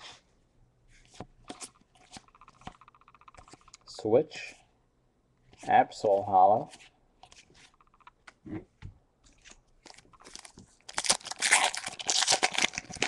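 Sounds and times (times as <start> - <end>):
trading cards clicking and sliding: 1.1 - 3.9
foil wrapper crinkling and tearing: 9.8 - 13.0.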